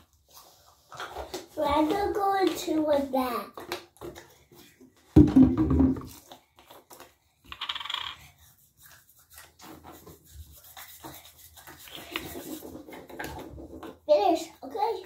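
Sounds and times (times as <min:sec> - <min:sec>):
plastic bottle knocking: 0:05.2 - 0:06.2
plastic bottle rubbing: 0:08.3 - 0:14.0.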